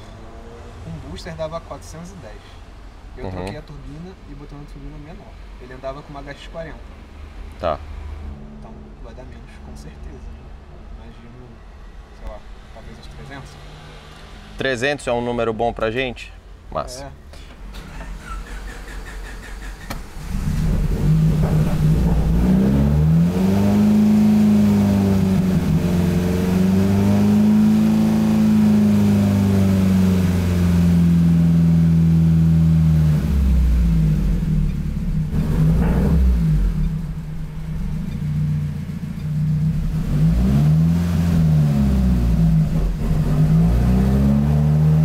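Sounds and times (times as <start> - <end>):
turbocharged car engine revving: 17.9 - 45.0.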